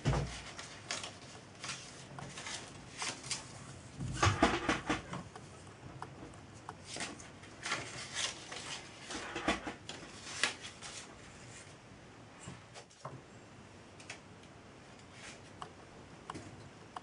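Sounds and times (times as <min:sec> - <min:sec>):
paper rustling: 0:00.0 - 0:05.0, 0:06.8 - 0:11.8.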